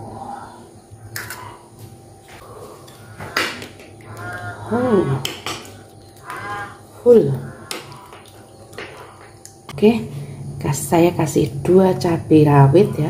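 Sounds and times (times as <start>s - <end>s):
drawn-out falling call: 2.4s - 9.4s.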